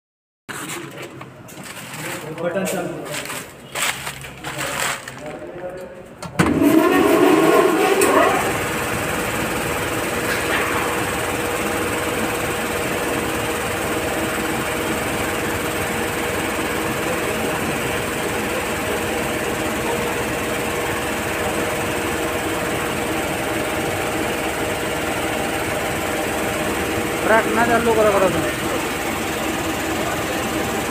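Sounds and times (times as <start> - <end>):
air compressor humming: 6.4 - 30.9
air compressor motor whine: 6.4 - 30.9.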